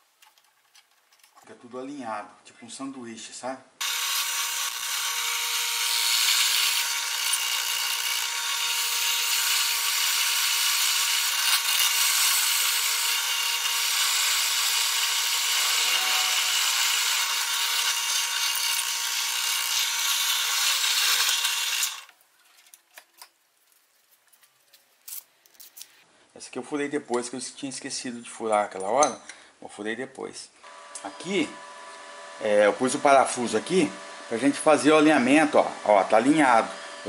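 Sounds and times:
drill press drilling steel: 3.8s - 22.1s.

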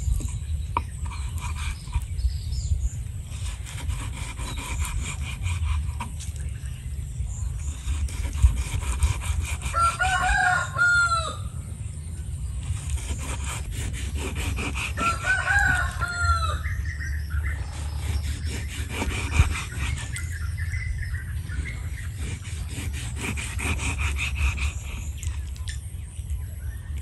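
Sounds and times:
knife sawing through meat: 0.9s - 2.2s, 3.2s - 6.4s, 7.6s - 11.0s, 12.6s - 16.7s, 17.6s - 20.7s, 21.4s - 25.4s
rooster crowing: 9.6s - 11.6s, 14.9s - 16.8s.

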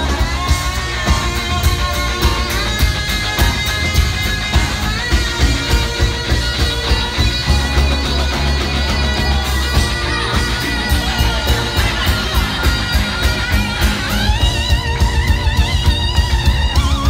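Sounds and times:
live funk-rock band playing: 0.0s - 17.0s
pedal steel guitar solo: 0.0s - 17.0s.

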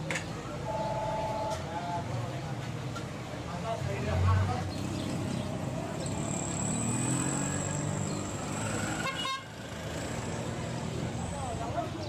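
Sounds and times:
small vehicle engines running: 4.7s - 12.0s.

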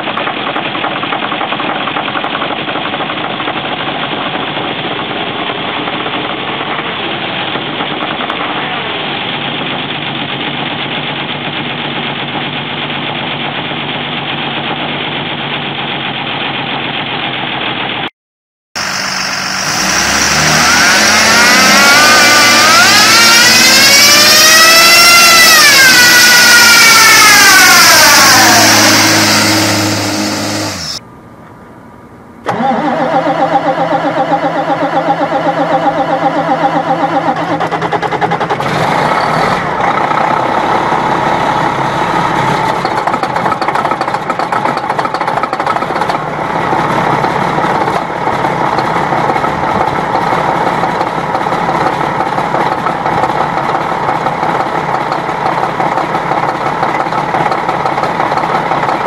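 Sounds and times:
diesel coach engine running: 0.0s - 18.1s, 18.8s - 59.0s
diesel bus engine revving: 18.8s - 31.0s, 32.4s - 59.0s.

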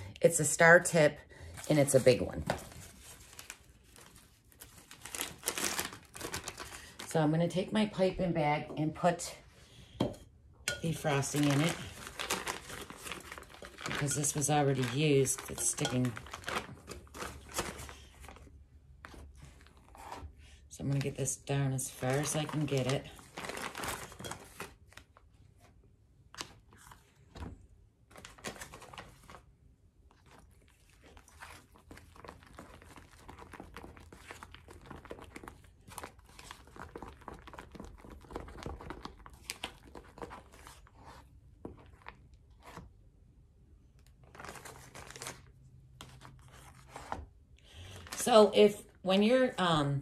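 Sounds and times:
plastic piping bag crinkling: 1.7s - 7.5s, 10.8s - 19.9s, 20.9s - 25.2s, 28.1s - 29.5s, 30.1s - 42.3s, 44.0s - 46.7s.

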